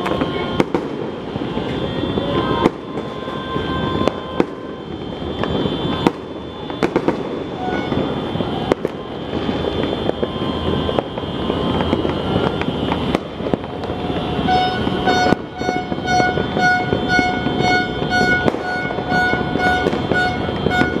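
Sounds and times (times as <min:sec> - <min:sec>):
beeping horn-like tone: 0:00.0 - 0:21.0
firecracker bangs: 0:00.0 - 0:21.0
fireworks crackling: 0:00.0 - 0:21.0.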